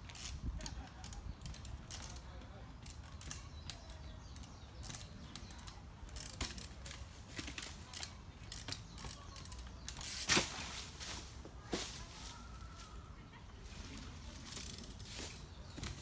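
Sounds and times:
bicycle clicks and taps: 0.0s - 10.3s
bicycle landing on rock: 8.6s - 11.0s.

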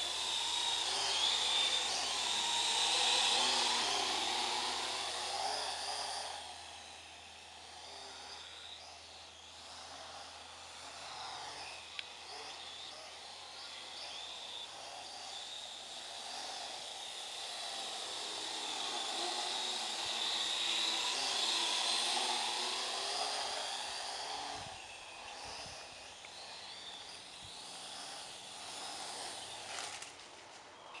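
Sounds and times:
quadcopter rotors buzzing: 0.0s - 31.0s.

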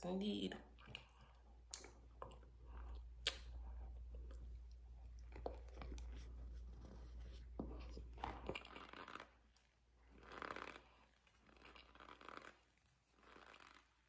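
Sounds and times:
crunchy chewing: 8.0s - 14.0s.

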